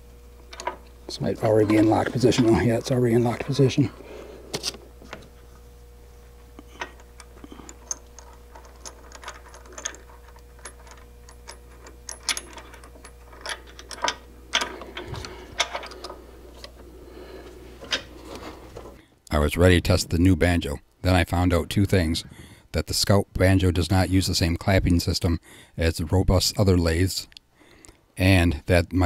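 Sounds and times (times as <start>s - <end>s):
faint steady hum: 0.0s - 29.0s
metal parts clicking and tapping: 0.5s - 0.8s, 6.8s - 16.8s.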